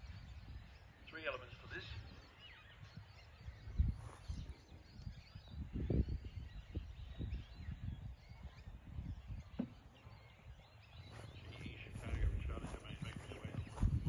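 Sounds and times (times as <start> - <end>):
faint bird chirps: 0.0 - 14.0.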